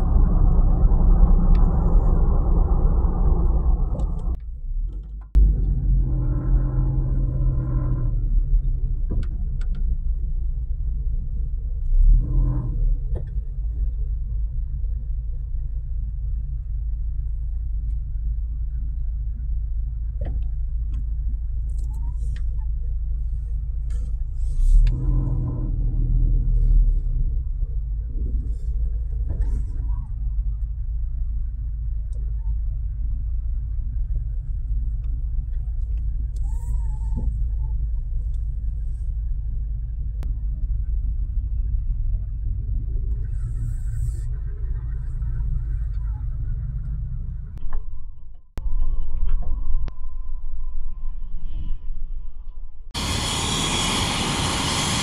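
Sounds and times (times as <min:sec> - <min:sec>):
idling vehicles and road traffic: 0:00.0 - 0:48.6, 0:52.9 - 0:55.0.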